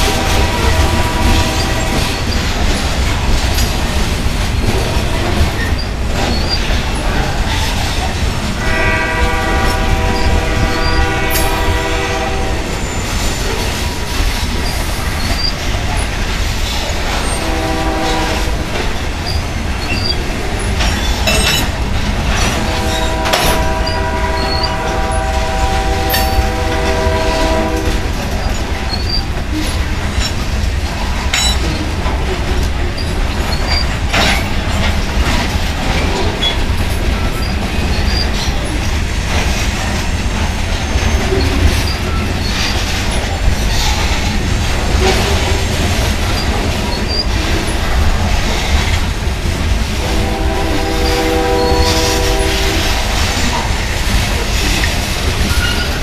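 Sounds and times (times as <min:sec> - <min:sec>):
locomotive horn: 0:00.0 - 0:02.4, 0:08.6 - 0:13.6, 0:17.1 - 0:18.8, 0:22.3 - 0:29.2, 0:50.0 - 0:53.8
railcar clicks and clanks: 0:00.0 - 0:56.0
train wheels rumbling on rails: 0:00.0 - 0:56.0.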